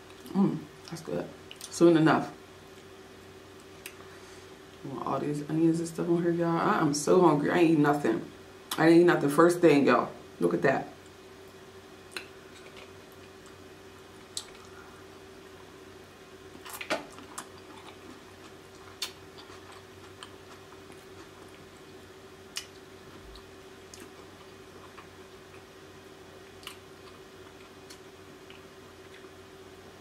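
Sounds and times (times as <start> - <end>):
wet eating squelches: 16.6 - 25.7.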